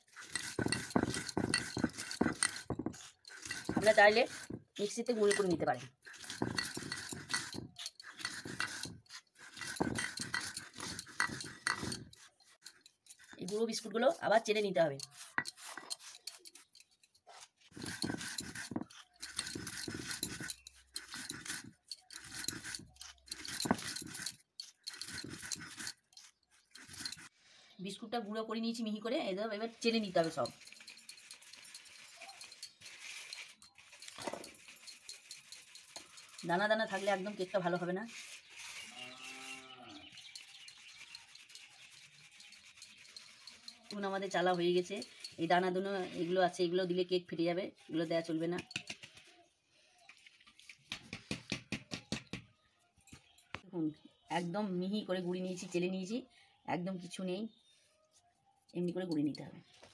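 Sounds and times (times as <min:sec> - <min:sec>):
powder rustling in a sieve: 0:00.0 - 0:27.3, 0:28.6 - 0:46.7
stone roller grinding on stone: 0:00.0 - 0:27.3, 0:28.6 - 0:47.0.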